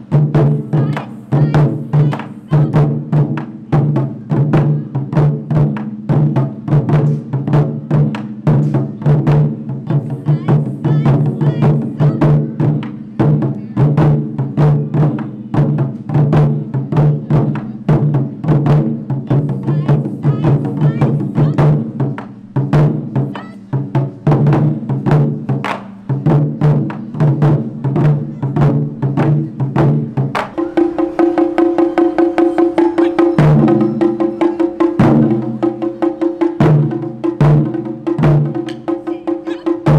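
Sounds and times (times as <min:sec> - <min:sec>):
taiko drums beating fast rhythm: 0:00.0 - 0:39.9.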